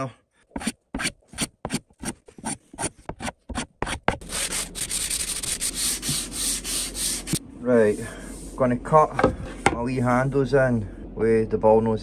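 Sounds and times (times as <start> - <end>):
hand tool scraping wood edge: 0.5 - 7.4
hand sanding wood: 0.6 - 8.6.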